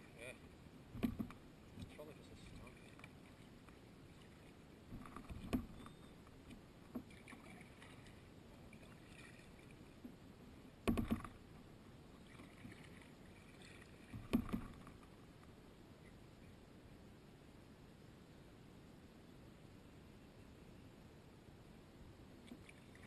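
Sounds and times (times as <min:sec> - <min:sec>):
kayak paddle strokes in water: 0:01.0 - 0:15.2.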